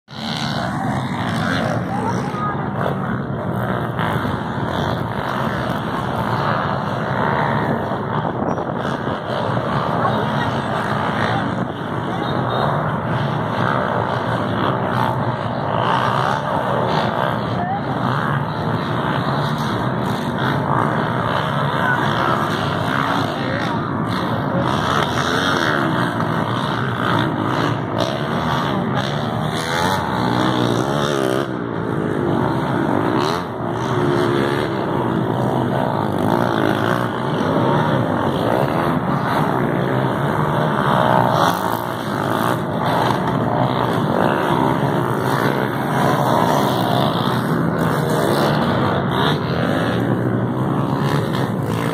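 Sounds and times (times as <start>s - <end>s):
dirt bike engines revving: 0.0s - 51.9s.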